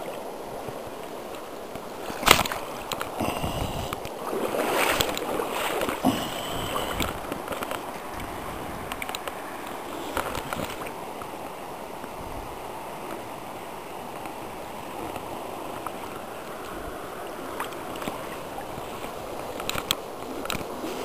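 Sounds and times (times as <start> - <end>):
river water running: 0.0 - 21.0
light splashes and knocks: 1.7 - 11.6.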